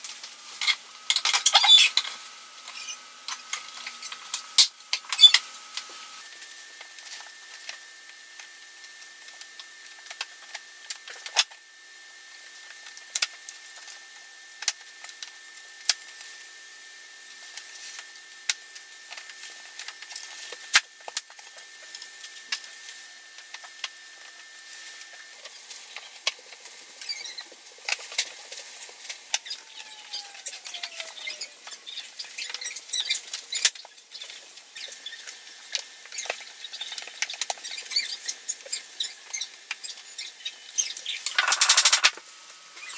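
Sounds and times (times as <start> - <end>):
scraping and rattling: 41.2 - 42.2.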